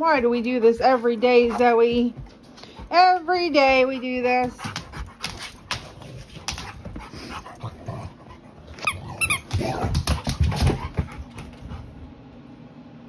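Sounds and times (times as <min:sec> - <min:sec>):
dog grumbling: 0:07.1 - 0:10.1.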